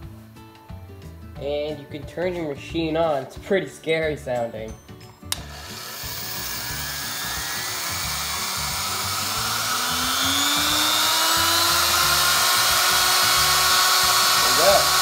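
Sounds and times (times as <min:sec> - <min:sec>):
router spindle whine rising: 0:05.3 - 0:15.0.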